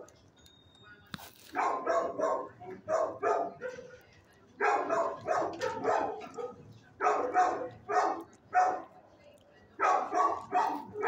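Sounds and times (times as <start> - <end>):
dogs barking: 1.5 - 4.0, 4.6 - 9.0, 9.8 - 11.0.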